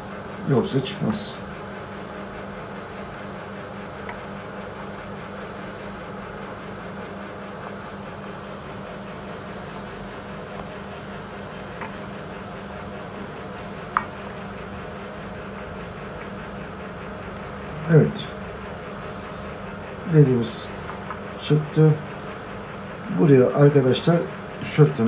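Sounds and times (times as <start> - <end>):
low machine-like hum: 0.0 - 25.0.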